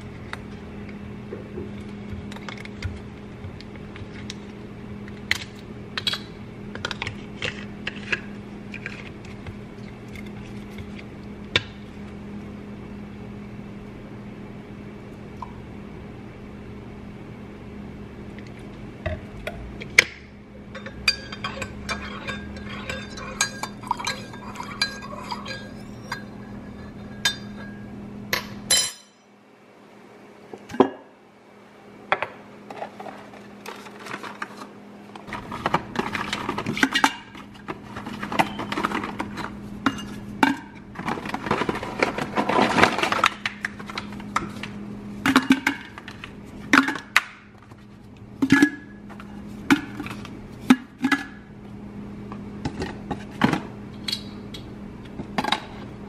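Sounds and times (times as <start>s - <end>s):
steady low hum: 0.0s - 56.0s
dishes and cutlery clattering: 20.7s - 27.8s.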